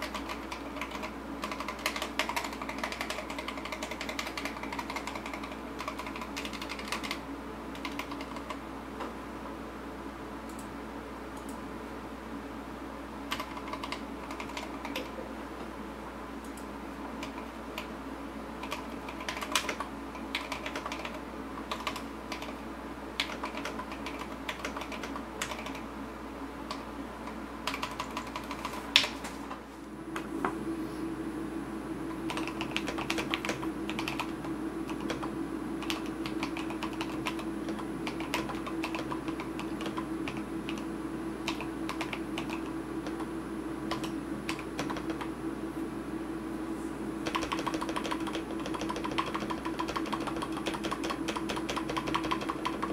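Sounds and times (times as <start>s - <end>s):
mechanical keyboard keystroke clacks: 0.0s - 7.2s, 47.2s - 52.9s.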